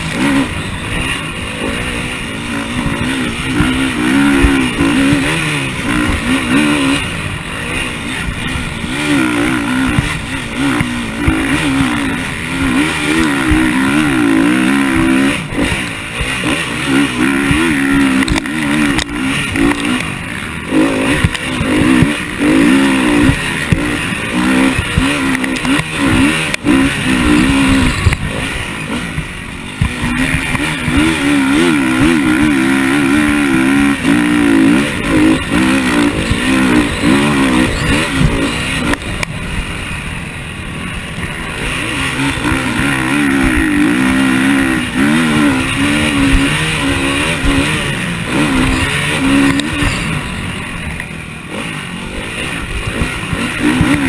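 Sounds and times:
motocross bike engine revving: 0.0 - 54.0.

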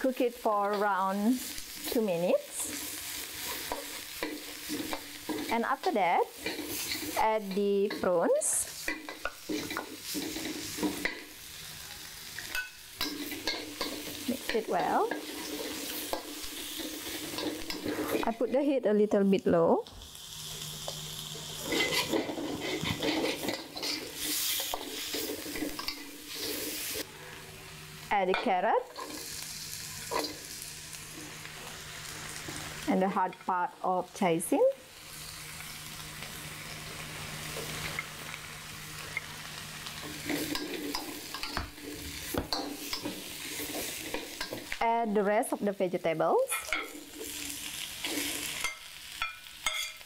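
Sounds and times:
food sizzling in oil: 0.0 - 50.0
metal spatula scraping a wok: 1.5 - 11.4, 12.4 - 18.4, 21.5 - 27.0, 40.0 - 44.7, 46.5 - 50.0.

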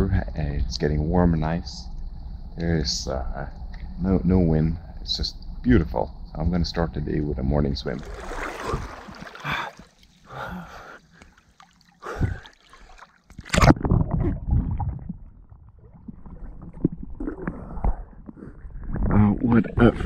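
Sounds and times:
seawater splashing and sloshing: 7.8 - 14.2
sharp loud splash: 8.0 - 9.9.

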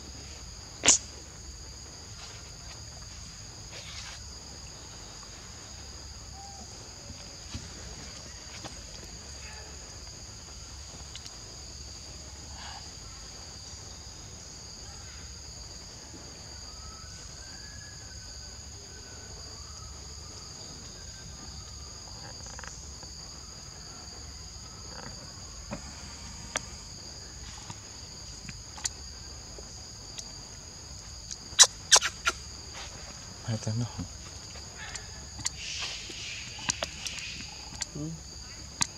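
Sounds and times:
insects buzzing: 0.0 - 38.9.

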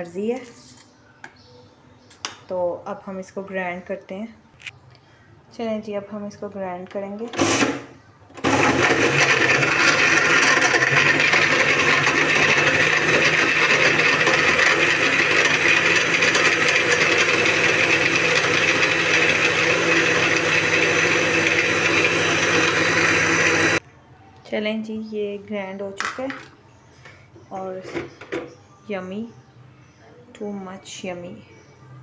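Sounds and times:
blender motor running: 7.4 - 23.8.

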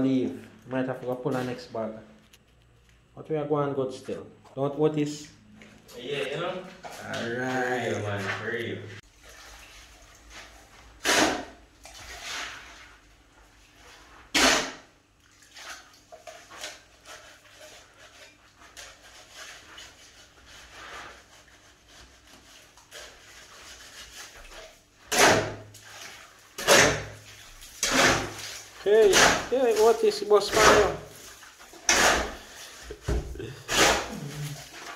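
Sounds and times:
shovel scraping concrete: 11.0 - 13.0, 13.8 - 14.8, 22.8 - 34.9.

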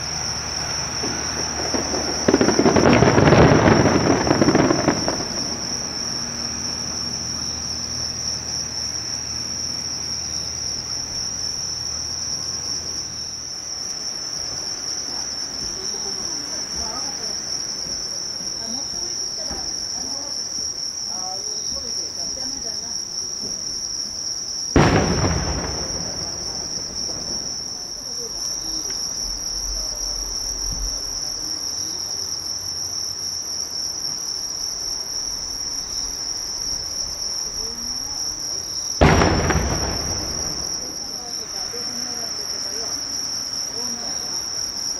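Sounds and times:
firework burst: 0.0 - 7.4, 24.7 - 28.8, 39.0 - 41.6
night insects chorus: 0.0 - 44.9.

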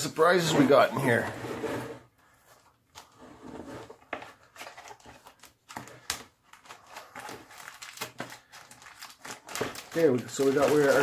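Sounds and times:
paper leaflets rustling: 4.4 - 11.0.

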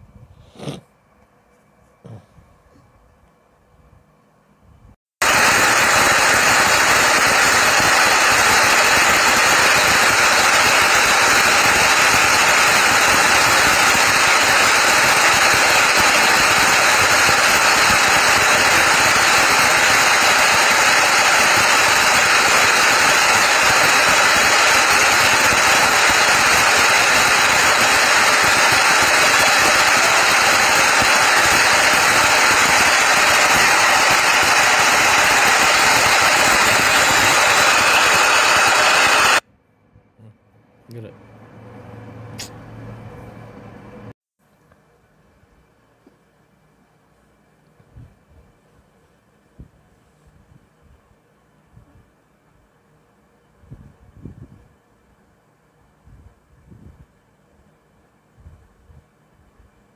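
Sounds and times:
drilling rig machinery running: 5.2 - 39.4.

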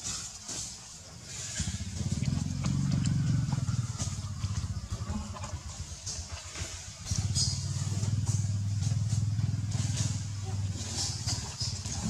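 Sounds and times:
small engine humming: 1.2 - 12.0.

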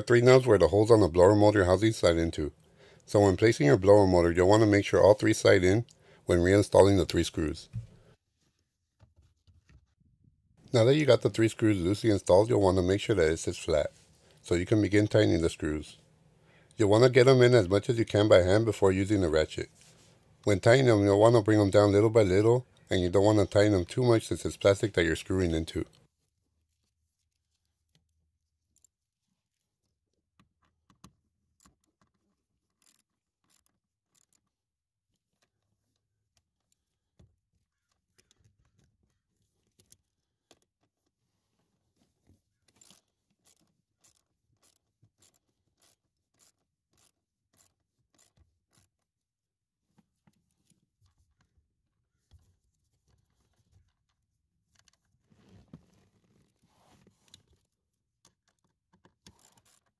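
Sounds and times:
screws being turned into plastic: 30.4 - 34.6, 42.6 - 49.1, 53.2 - 59.9.

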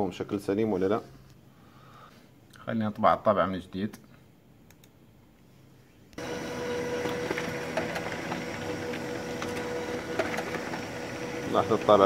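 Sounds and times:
faint clicks: 4.7 - 5.0
laser printer printing: 6.2 - 12.0.

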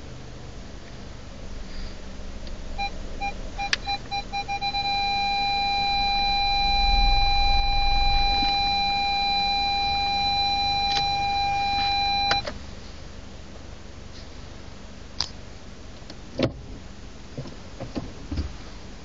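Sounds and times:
continuous warning tone: 2.2 - 12.6
parking sensor beeps: 2.8 - 12.6.

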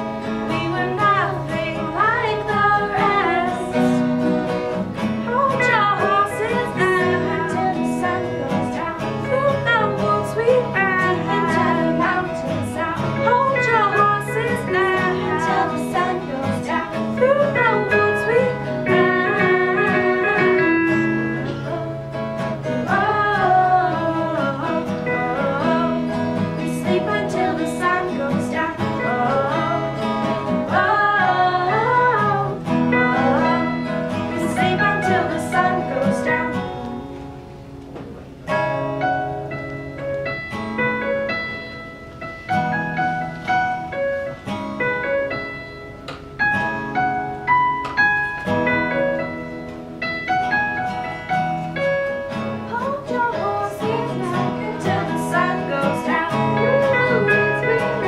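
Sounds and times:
acoustic guitars strumming: 0.0 - 58.0
keyboard chords: 0.0 - 58.0
girls singing: 0.4 - 4.3, 5.2 - 37.0, 52.7 - 58.0.

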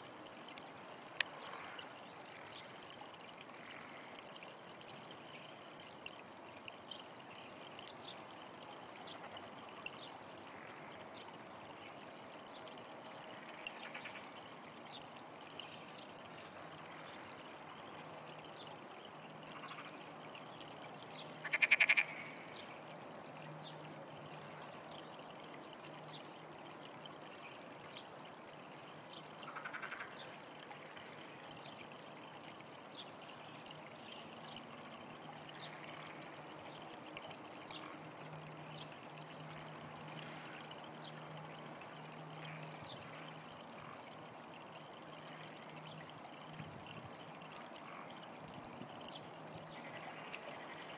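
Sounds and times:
frog croaking: 19.5 - 20.0, 21.4 - 22.4, 29.4 - 30.2, 49.8 - 50.9.

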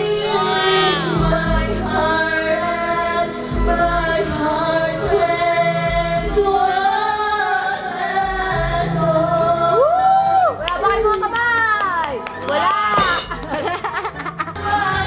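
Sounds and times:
girl singing karaoke: 0.0 - 11.7
karaoke backing track: 0.0 - 15.0.

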